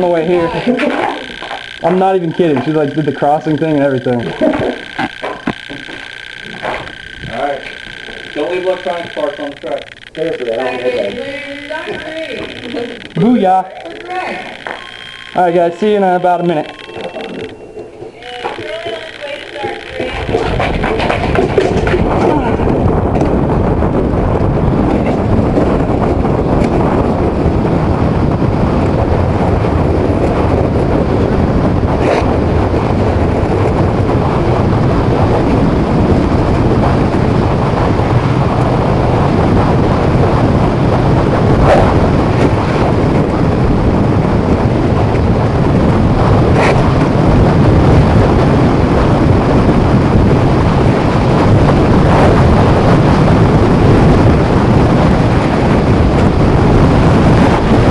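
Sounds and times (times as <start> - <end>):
wind rushing over microphone: 0.0 - 57.9
sharp clicks: 0.6 - 22.0
sled runners scraping over ice: 18.1 - 22.3.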